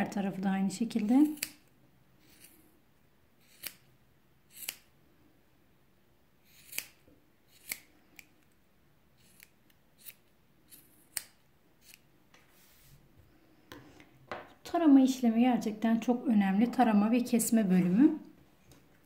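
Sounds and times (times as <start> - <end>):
scissors snipping cord: 1.0 - 1.7, 6.5 - 8.6.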